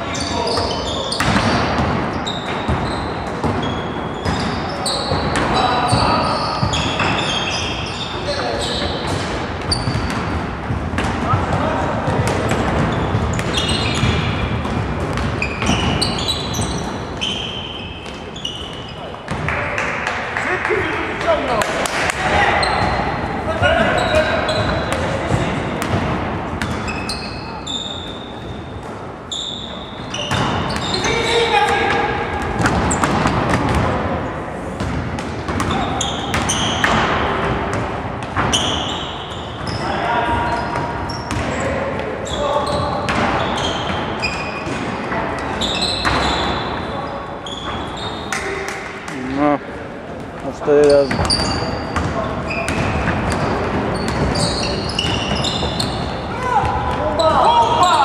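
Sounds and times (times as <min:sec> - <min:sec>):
sneaker squeaks on floor: 0:00.0 - 0:10.4, 0:11.0 - 0:19.4, 0:22.4 - 0:33.8, 0:34.8 - 0:49.5, 0:50.6 - 0:58.0
basketball bouncing on court: 0:00.5 - 0:07.4, 0:08.8 - 0:17.4, 0:22.6 - 0:27.1, 0:30.1 - 0:31.0, 0:32.4 - 0:34.0, 0:34.8 - 0:39.0, 0:40.5 - 0:41.6, 0:42.6 - 0:45.0, 0:51.0 - 0:56.1
basketball bouncing on floor: 0:09.7 - 0:16.6.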